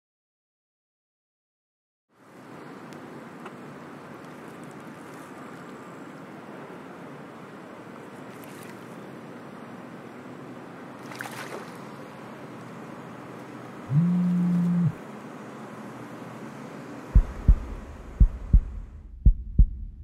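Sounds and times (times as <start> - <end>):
wind: 2.1 - 20.0
water noise: 2.4 - 15.0, 17.2 - 19.0.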